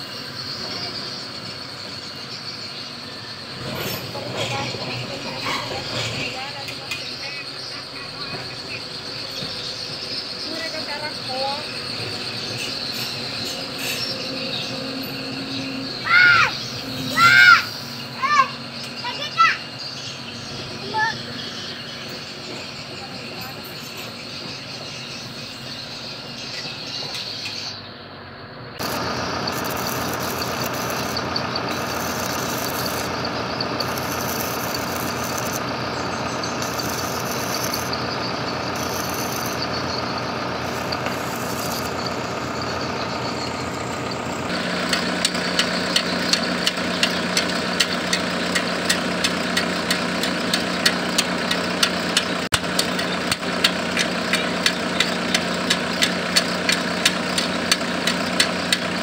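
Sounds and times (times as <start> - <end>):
engine hum: 0.0 - 59.0
arc welding crackle and hiss: 28.8 - 42.5.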